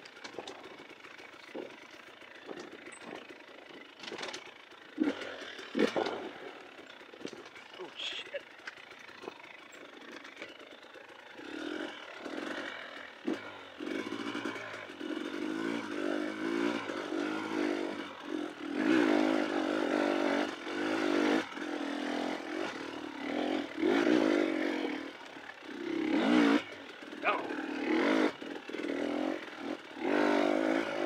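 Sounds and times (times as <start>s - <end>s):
dirt bike engine revving: 0.0s - 31.0s
knocks and clatter: 0.1s - 0.8s, 1.5s - 4.5s.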